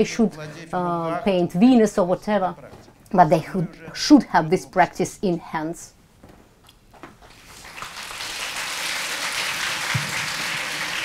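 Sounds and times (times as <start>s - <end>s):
large audience applauding: 7.3s - 11.0s.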